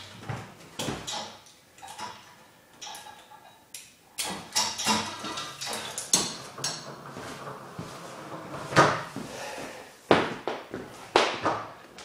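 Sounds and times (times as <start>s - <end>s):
soft shuffling: 7.1s - 10.1s.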